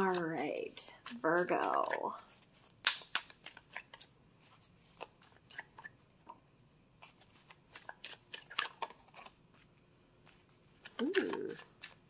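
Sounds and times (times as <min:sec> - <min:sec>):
cards being shuffled: 0:00.0 - 0:05.9, 0:07.0 - 0:12.0.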